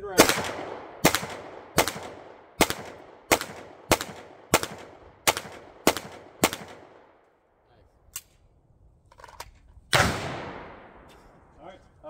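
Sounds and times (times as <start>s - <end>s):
pistol shots with echo: 0.1s - 7.1s, 9.9s - 11.1s.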